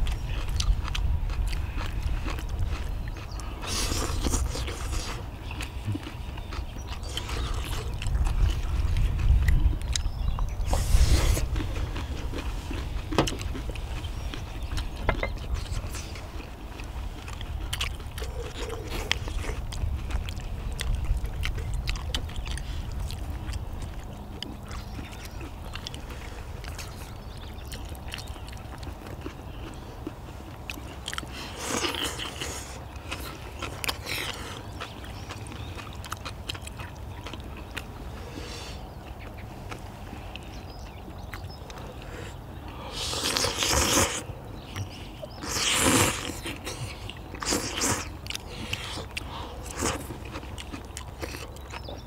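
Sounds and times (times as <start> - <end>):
low steady rumble: 0.0 - 31.6
chewing and slurping: 0.0 - 52.0.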